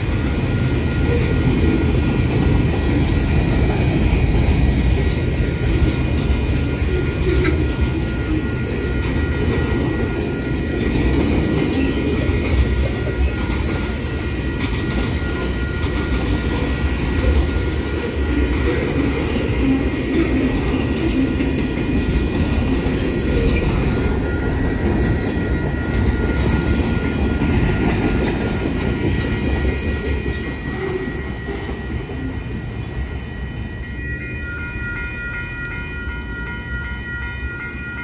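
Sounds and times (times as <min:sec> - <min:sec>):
train wheels rumbling over rails: 0:00.0 - 0:33.8
crossing signal bell ringing: 0:00.0 - 0:38.0.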